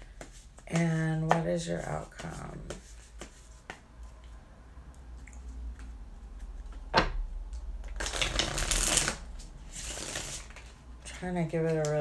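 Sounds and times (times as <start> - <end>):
cards being shuffled: 2.1 - 3.8, 7.8 - 10.8.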